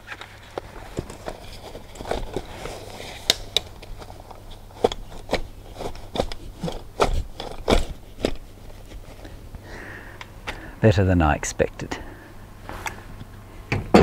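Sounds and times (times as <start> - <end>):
folding chair clicks and scrapes: 0.0 - 9.4.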